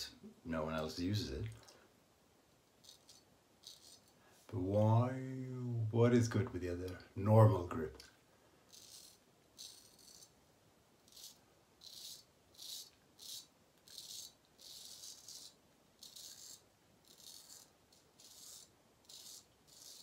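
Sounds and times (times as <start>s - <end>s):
razor scraping stubble: 2.8s - 4.2s, 8.7s - 10.4s, 11.0s - 20.0s.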